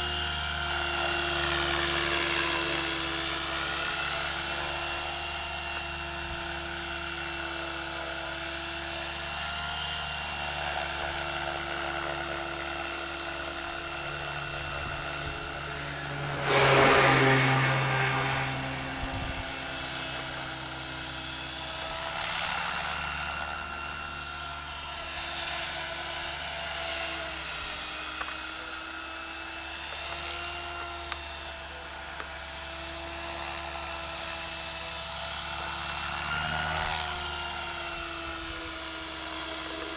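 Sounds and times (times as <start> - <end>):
rc helicopter whine: 0.0 - 39.9
rush of noise: 14.2 - 19.8.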